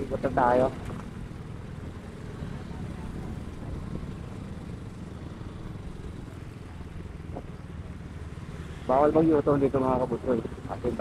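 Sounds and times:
motorcycle engine rumbling: 0.0s - 11.0s.

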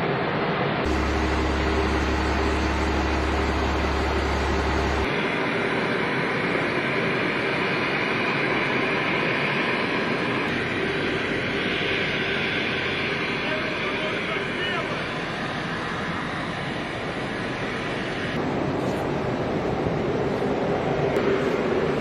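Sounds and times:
jet engines running: 0.0s - 22.0s
low hum: 0.8s - 7.2s.

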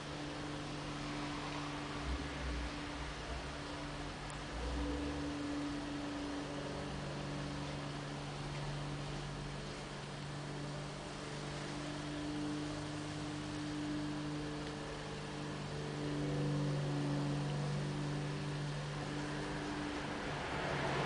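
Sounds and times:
constant hiss: 0.0s - 21.0s
low hum of held tones: 0.0s - 21.0s.

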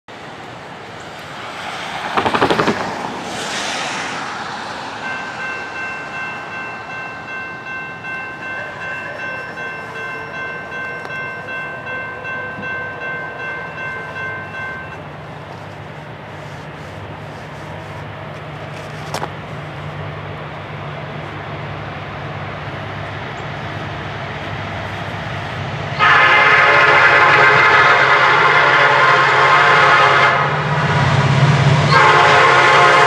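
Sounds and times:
distant locomotive horn: 26.0s - 33.0s.

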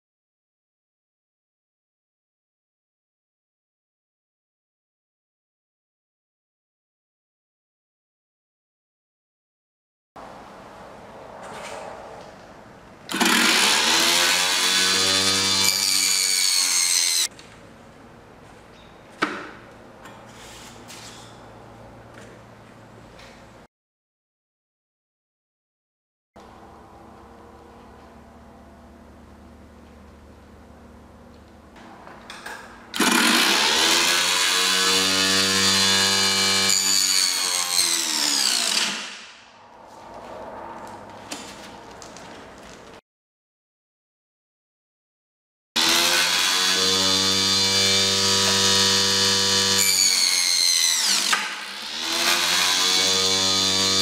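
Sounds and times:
table saw blade whine: 13.1s - 17.3s, 33.0s - 39.4s, 45.8s - 54.0s.

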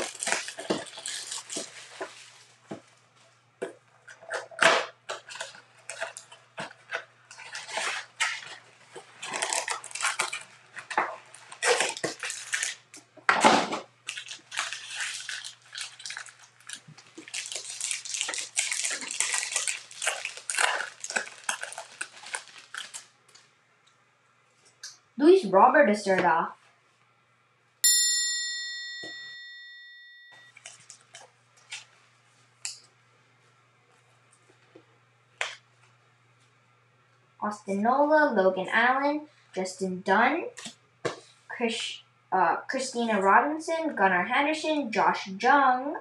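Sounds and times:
foil wrappers crinkling and ripping: 0.0s - 2.6s, 5.1s - 13.1s, 14.0s - 23.5s, 30.6s - 32.0s.

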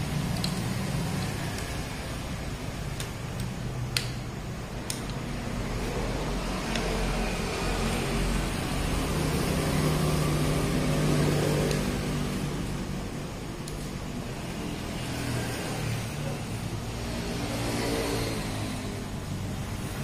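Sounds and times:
sharp clicks: 2.9s - 5.3s.

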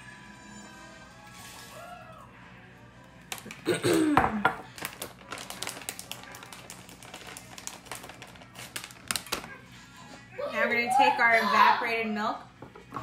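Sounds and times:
plastic bag crinkling: 4.6s - 9.6s.

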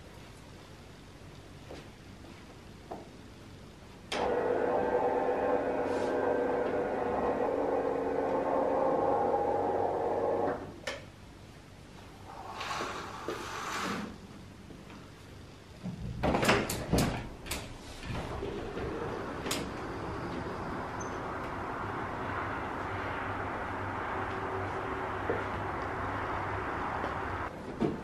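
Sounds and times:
steady hum: 0.0s - 28.0s
curtain drawn along rail: 4.2s - 10.5s, 12.4s - 14.1s, 17.7s - 27.5s.

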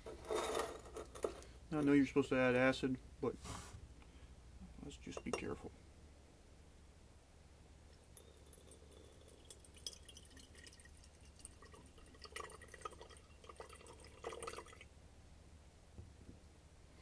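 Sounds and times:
liquid trickling and splashing: 8.2s - 14.9s.

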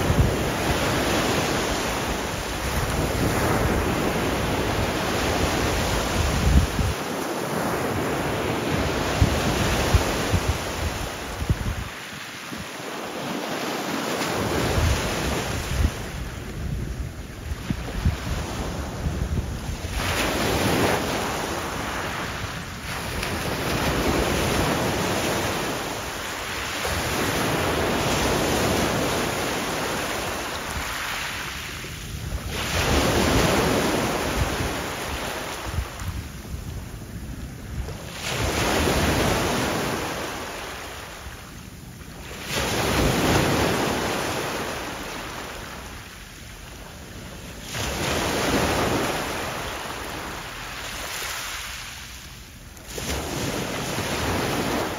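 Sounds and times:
wind rumbling on microphone: 0.0s - 7.1s, 7.7s - 12.7s, 14.3s - 40.6s
small waves breaking on shore: 0.0s - 54.9s.

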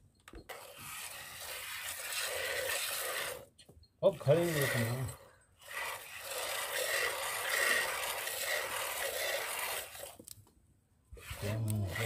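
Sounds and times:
milk squirting into bucket: 5.6s - 10.4s.

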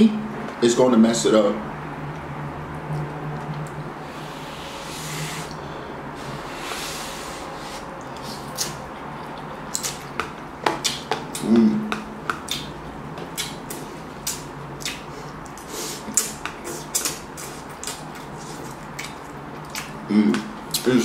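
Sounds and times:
wet mouth clicks and smacks: 8.0s - 20.9s.

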